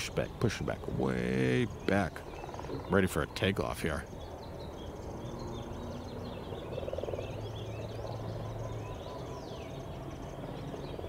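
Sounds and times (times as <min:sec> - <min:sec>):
small animals chirping: 0:00.0 - 0:04.9, 0:05.7 - 0:11.0
low steady hum: 0:00.0 - 0:11.0.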